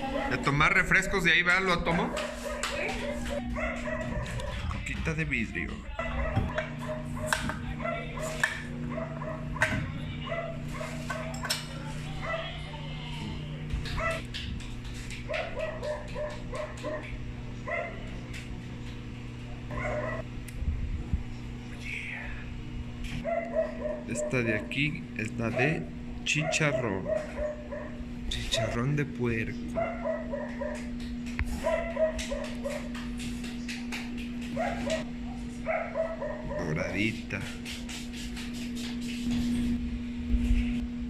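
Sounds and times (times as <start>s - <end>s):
steady low hum: 0.0s - 41.0s
dog barking: 1.9s - 4.7s, 5.9s - 11.5s, 12.2s - 12.6s, 13.9s - 14.2s, 15.3s - 18.1s, 19.7s - 20.2s, 23.2s - 24.7s, 25.5s - 28.8s, 29.7s - 30.9s, 31.5s - 32.9s, 34.5s - 36.9s.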